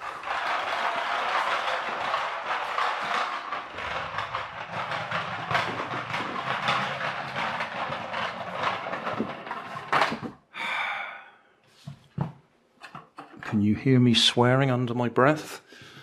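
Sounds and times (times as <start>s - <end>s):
toy tractor rattling on wood floor: 0.0s - 10.4s.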